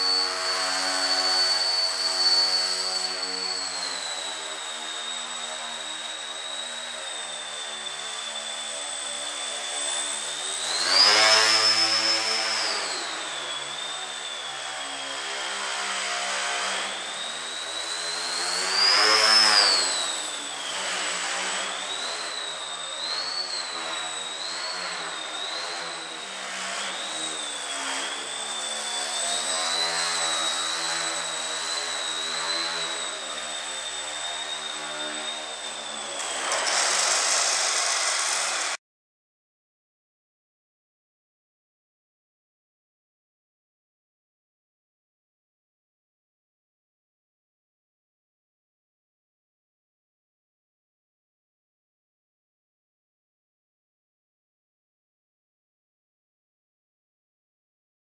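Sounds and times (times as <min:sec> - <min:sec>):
small electric propeller whining: 0:00.0 - 0:38.8.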